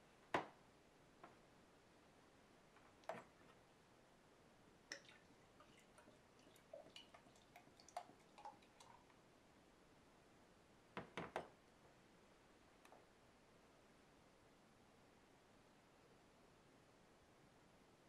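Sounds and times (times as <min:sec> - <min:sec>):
beer pouring into glass: 0:04.9 - 0:09.1.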